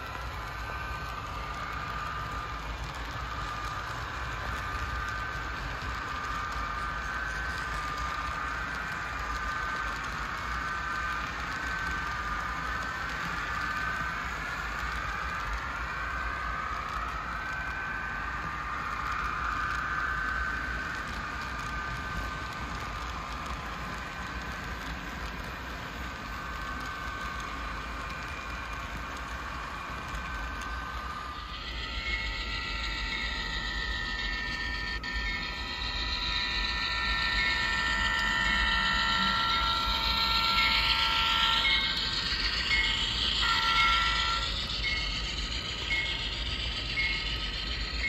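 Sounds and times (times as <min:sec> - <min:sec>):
model train rolling on track: 0:00.0 - 0:48.0.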